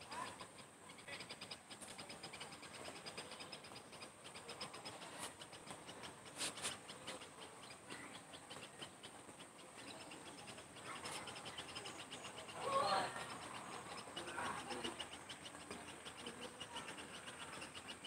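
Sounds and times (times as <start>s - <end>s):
insects chirping: 0.1s - 18.0s.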